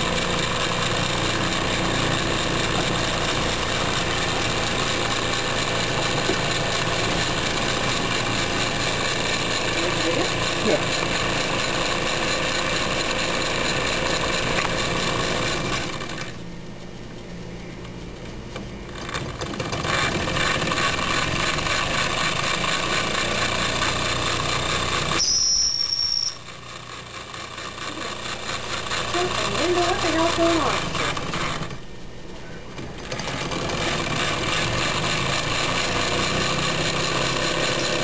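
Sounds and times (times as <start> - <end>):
toy steam engine running: 0.0 - 16.4, 18.9 - 31.8, 33.0 - 38.0
short high whistle: 25.2 - 26.5.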